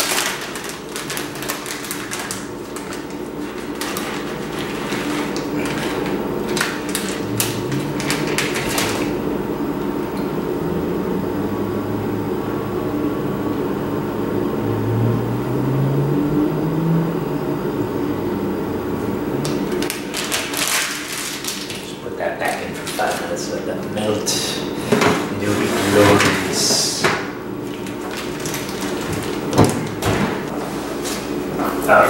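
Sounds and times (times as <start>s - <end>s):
plastic bag crinkling: 0.0s - 9.2s, 19.6s - 24.1s, 25.2s - 30.2s
low hum: 4.5s - 20.0s.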